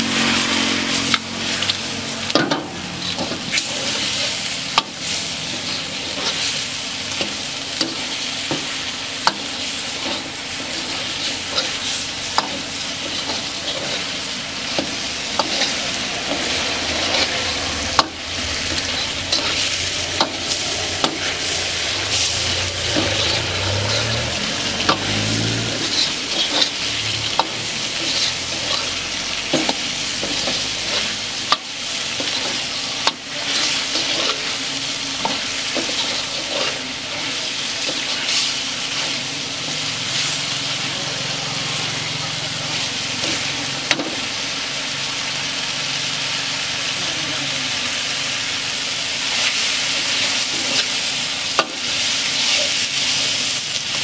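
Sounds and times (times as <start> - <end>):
chicken sizzling in wok: 0.0 - 54.0.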